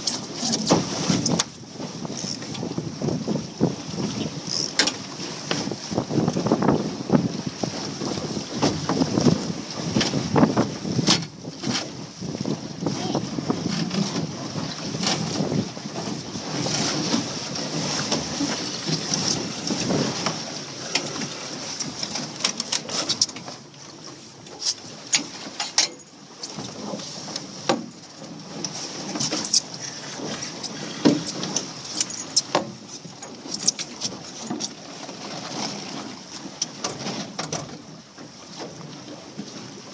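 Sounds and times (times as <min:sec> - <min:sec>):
wind buffeting microphone: 0:00.0 - 0:04.6, 0:05.4 - 0:22.4
water rushing along hull: 0:00.0 - 0:39.9.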